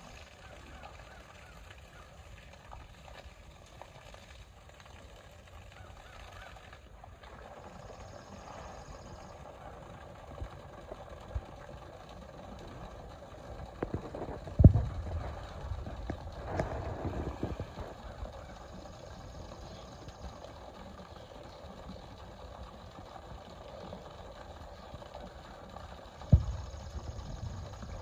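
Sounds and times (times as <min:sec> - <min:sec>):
water splashing and sloshing: 0:00.0 - 0:28.0.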